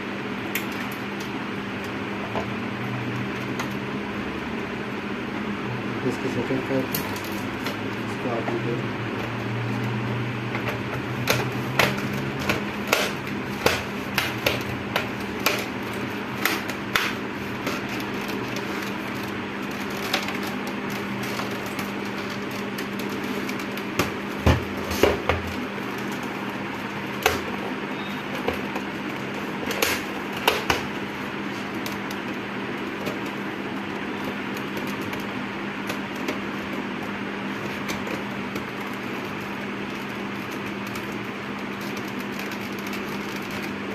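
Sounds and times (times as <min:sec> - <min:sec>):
steady background hum: 0:00.0 - 0:43.9.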